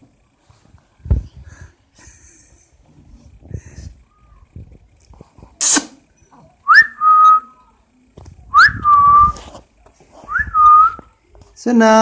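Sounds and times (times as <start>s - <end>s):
short hiss: 5.6s - 6.1s
person whistling: 6.7s - 7.5s, 10.3s - 11.0s.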